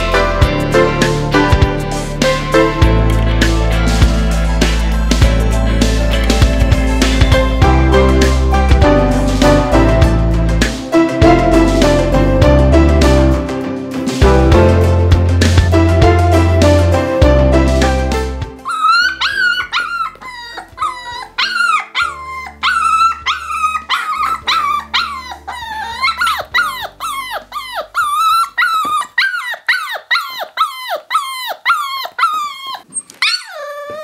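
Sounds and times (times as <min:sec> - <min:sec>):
background music: 0:00.0 - 0:28.6
puppy whining: 0:18.6 - 0:34.0.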